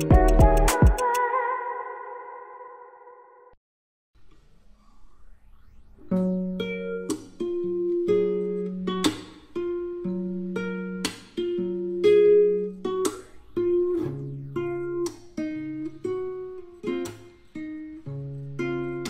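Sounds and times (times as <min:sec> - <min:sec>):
background music with beat: 0:00.0 - 0:01.3.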